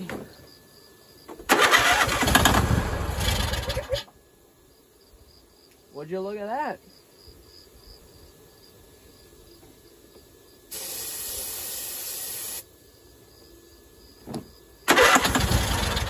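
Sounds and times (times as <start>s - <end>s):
aerosol can spraying hiss: 10.7s - 12.7s.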